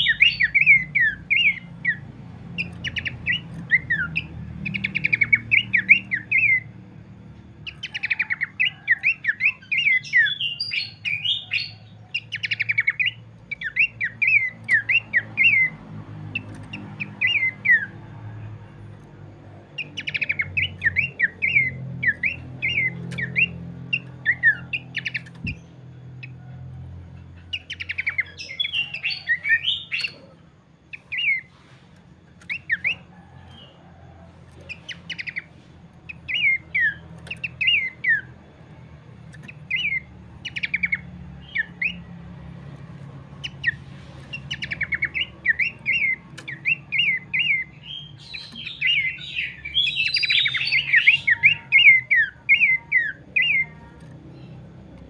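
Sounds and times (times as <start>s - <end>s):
bird whistling: 0.0s - 6.7s, 7.6s - 15.8s, 16.4s - 18.0s, 19.8s - 25.7s, 27.4s - 31.6s, 32.4s - 33.8s, 34.6s - 35.5s, 36.1s - 38.4s, 39.3s - 42.1s, 43.4s - 54.6s
bird chattering song: 0.0s - 33.8s, 34.4s - 55.0s.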